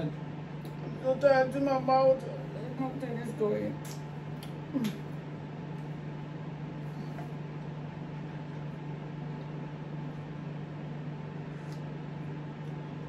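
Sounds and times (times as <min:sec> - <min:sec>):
low mechanical hum with hiss: 0:00.0 - 0:13.0.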